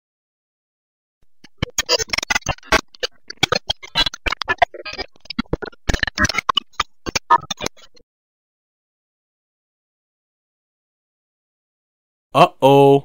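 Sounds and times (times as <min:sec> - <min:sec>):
rapid sharp clicks and taps: 0:01.2 - 0:08.0.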